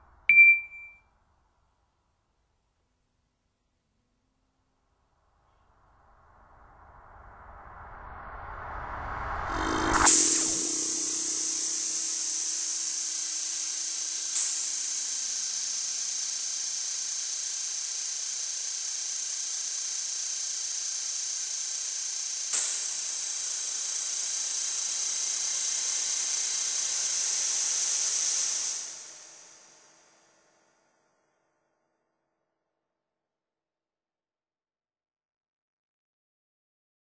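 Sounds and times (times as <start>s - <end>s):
steady high hiss: 9.4s - 30.3s.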